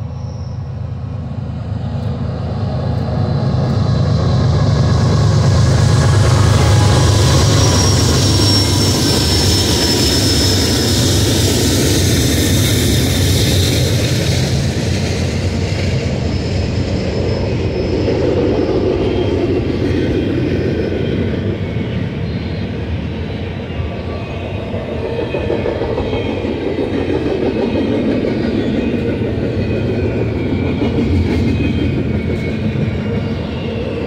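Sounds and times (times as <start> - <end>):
diesel locomotive engine drone: 0.0 - 34.0
train cars rumbling on rails: 0.0 - 34.0
thin high whine: 5.0 - 11.9.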